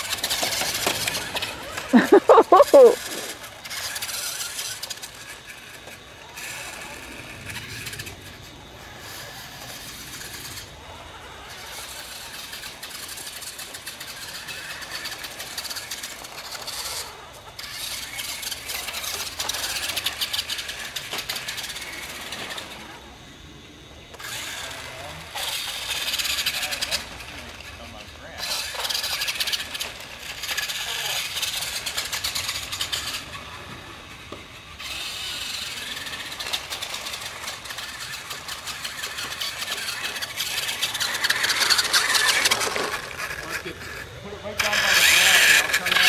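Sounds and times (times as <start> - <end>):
toy truck motors whirring: 0.0 - 46.0.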